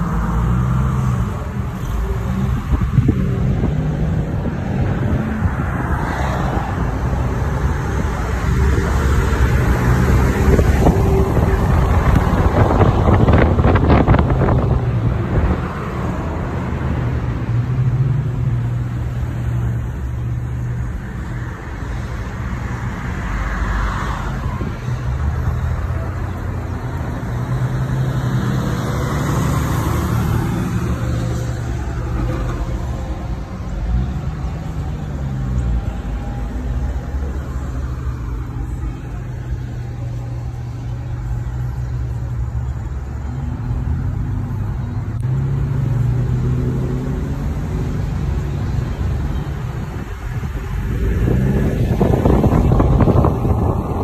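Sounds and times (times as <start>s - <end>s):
vehicle engines running: 0.0s - 54.0s
wind noise: 2.0s - 17.5s, 45.9s - 54.0s.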